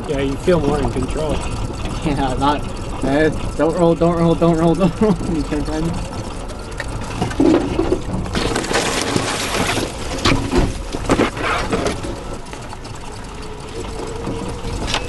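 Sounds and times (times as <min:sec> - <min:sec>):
low vehicle rumble: 0:00.0 - 0:15.0
brush swishing against vehicle: 0:10.3 - 0:12.0.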